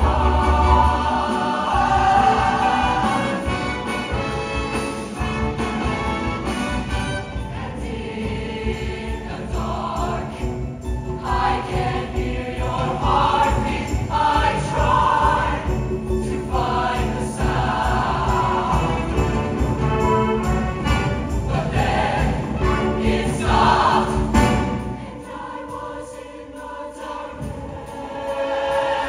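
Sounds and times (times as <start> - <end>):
mixed choir singing: 0.0 - 29.0
live band playing: 3.0 - 7.7, 18.6 - 21.6.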